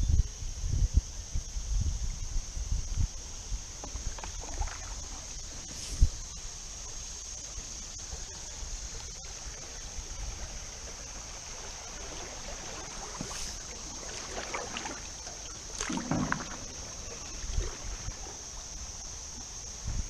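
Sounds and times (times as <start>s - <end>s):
steady high hiss: 0.0s - 20.0s
canoe paddles splashing in water: 3.7s - 19.6s
low thumps on canoe: 12.4s - 18.4s.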